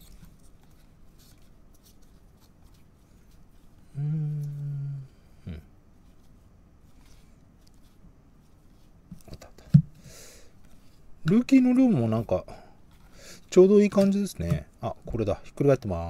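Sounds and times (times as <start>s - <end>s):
man humming: 3.9s - 5.8s.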